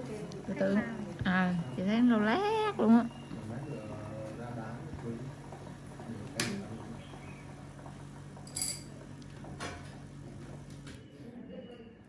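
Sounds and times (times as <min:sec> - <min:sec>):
small metal instruments clinking: 0:08.4 - 0:09.0.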